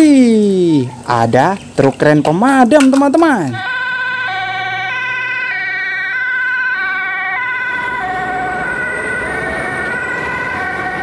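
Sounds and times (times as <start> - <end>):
two-tone emergency siren: 3.5 - 11.0.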